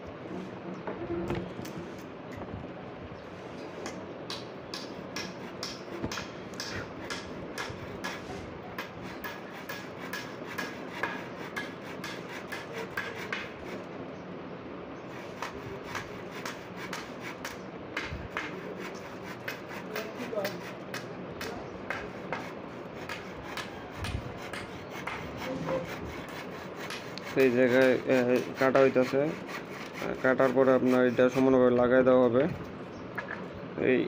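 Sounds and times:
handsaw cutting wood: 0:05.2 - 0:13.9, 0:15.1 - 0:17.6, 0:18.3 - 0:21.0, 0:21.9 - 0:31.7.

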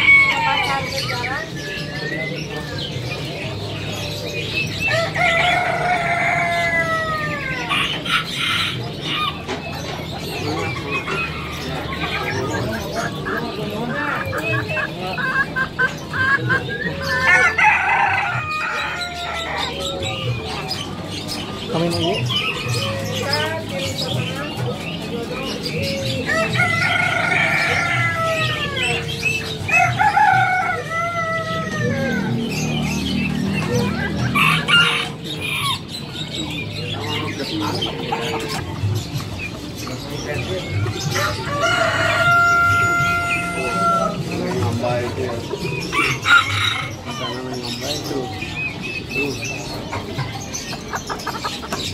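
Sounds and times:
small birds chirping: 0:00.0 - 0:51.9.

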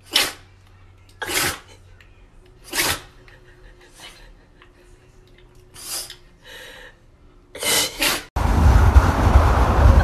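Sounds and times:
dog sneezing: 0:00.0 - 0:00.5, 0:01.2 - 0:01.8, 0:02.6 - 0:03.2, 0:05.7 - 0:06.2, 0:07.6 - 0:08.3
wind rush on microphone: 0:08.4 - 0:10.0.

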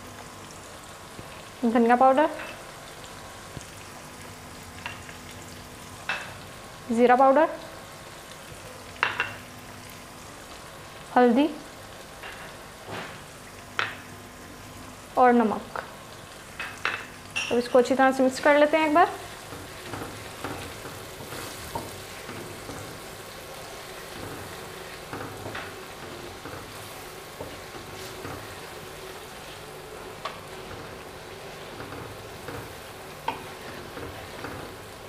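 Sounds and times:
food sizzling in oil: 0:00.0 - 0:35.0
spatula knocking and scraping pan: 0:19.4 - 0:23.0, 0:24.1 - 0:28.6.

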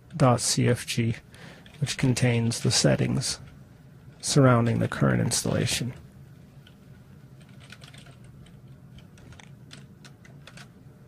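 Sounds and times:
computer keyboard clicking: 0:07.4 - 0:10.7.

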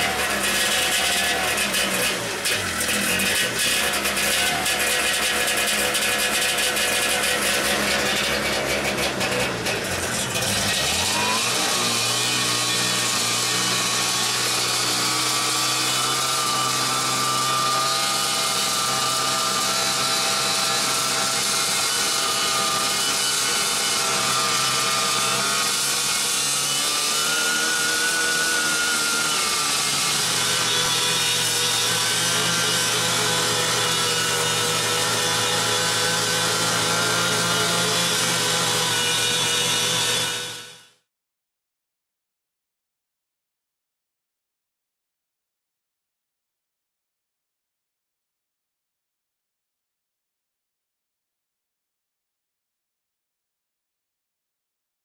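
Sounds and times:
snowmobile engine running: 0:00.0 - 0:15.0.

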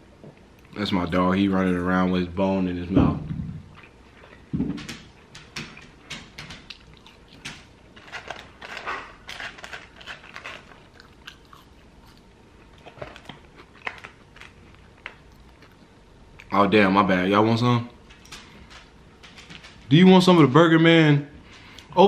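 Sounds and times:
low thump: 0:02.9 - 0:03.7
person chewing: 0:06.7 - 0:16.5.

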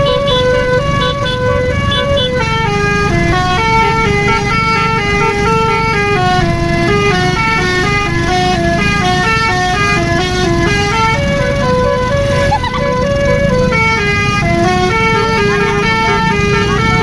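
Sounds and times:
engine rumble: 0:00.0 - 0:17.0
multi-tone bus horn melody: 0:00.0 - 0:17.0.

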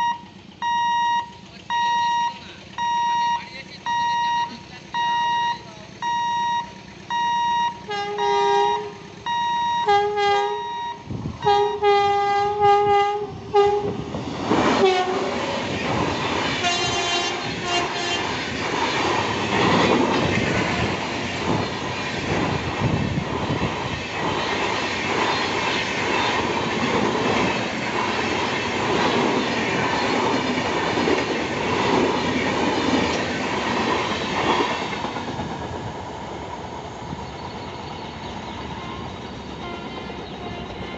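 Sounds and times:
electronic warning beeper: 0:00.0 - 0:11.9
locomotive horn blasts: 0:07.7 - 0:14.1, 0:14.8 - 0:15.3, 0:16.6 - 0:18.3, 0:38.8 - 0:40.9
train wheels clattering past: 0:11.4 - 0:40.9.

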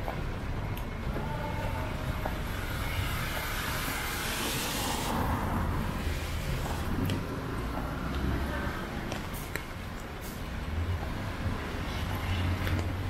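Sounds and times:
low traffic rumble: 0:00.0 - 0:13.0
tyres hissing through water: 0:02.7 - 0:06.8.

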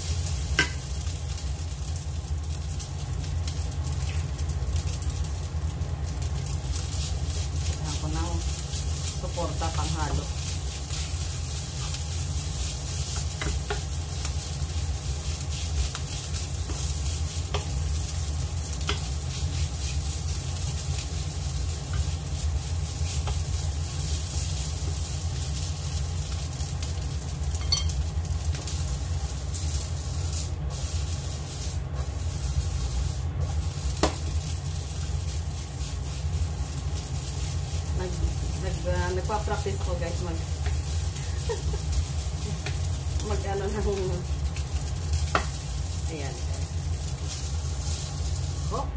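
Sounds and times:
food sizzling in oil: 0:00.0 - 0:48.9
steady low hum: 0:00.0 - 0:48.9
wooden spatula scraping pan: 0:29.2 - 0:36.3.

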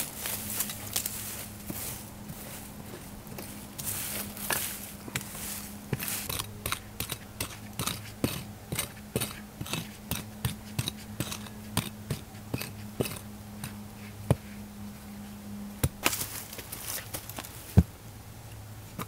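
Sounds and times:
pick mattock chopping soil: 0:03.3 - 0:14.5.

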